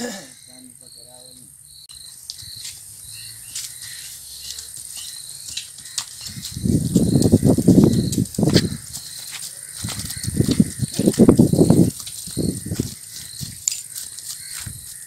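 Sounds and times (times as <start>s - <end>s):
insects chirping: 0.0s - 15.0s
horse trotting over field: 2.3s - 15.0s.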